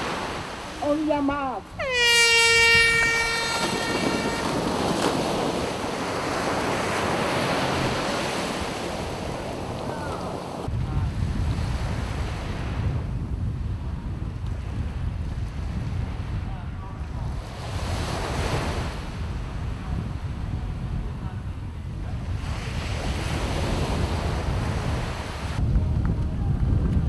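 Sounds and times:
surf rushing: 0.0s - 10.8s
wind rumbling on microphone: 0.0s - 27.0s
start horn blast: 1.8s - 5.2s
swimmers splashing: 1.8s - 10.6s.

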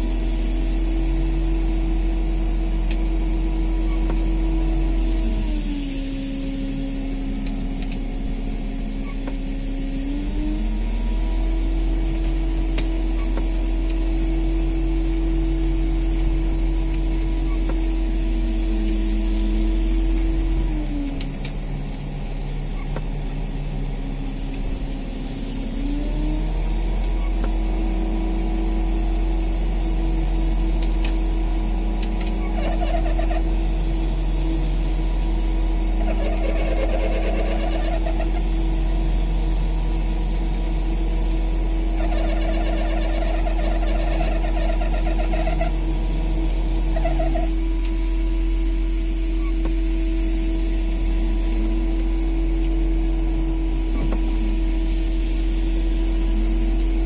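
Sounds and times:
boat engine running: 0.0s - 57.0s.

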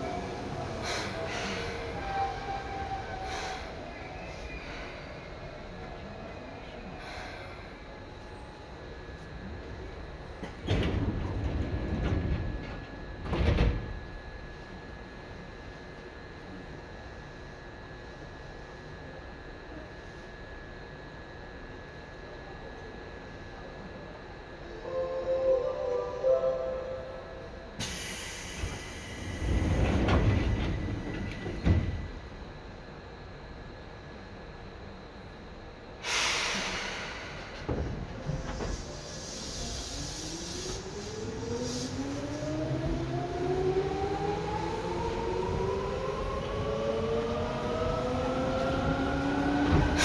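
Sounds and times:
train car background noise: 0.0s - 50.0s
train doors sliding and thudding: 10.3s - 14.2s, 27.8s - 32.2s, 36.0s - 43.1s, 48.6s - 50.0s
doors shutting with a thump: 10.5s - 14.0s
sliding doors rumbling: 10.5s - 14.0s, 29.4s - 32.0s
air hissing: 36.0s - 37.6s.

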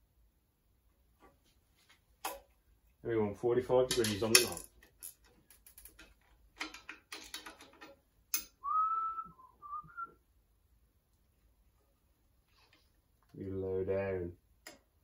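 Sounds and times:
metal tube clicks and taps: 6.0s - 8.6s, 14.6s - 14.9s
man whistling: 8.6s - 10.2s.

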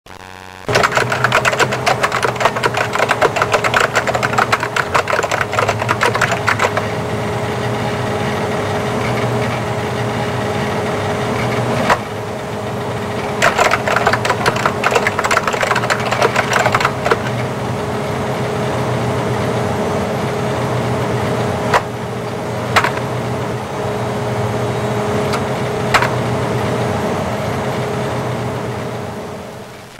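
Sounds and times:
steady motor hum: 0.3s - 29.9s
sharp typewriter clacks: 0.7s - 6.9s, 13.2s - 17.4s, 22.8s - 23.0s, 25.9s - 26.1s
typewriter key clatter: 0.7s - 6.9s, 13.4s - 17.4s.

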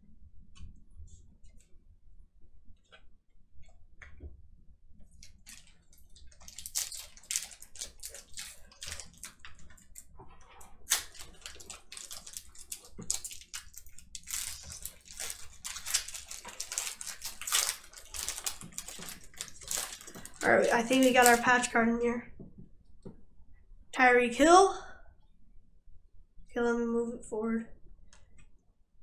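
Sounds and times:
wrapper crinkling torn open: 5.5s - 10.1s, 10.9s - 21.6s.

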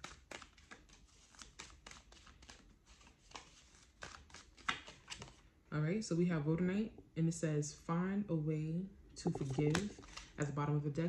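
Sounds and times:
cards being shuffled: 0.0s - 5.4s, 9.2s - 10.4s.

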